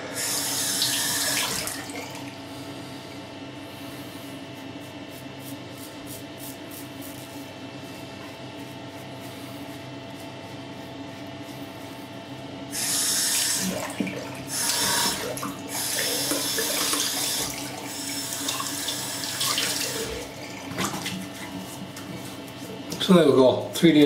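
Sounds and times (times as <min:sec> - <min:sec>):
sink tap running: 0:00.0 - 0:02.3, 0:12.8 - 0:21.7.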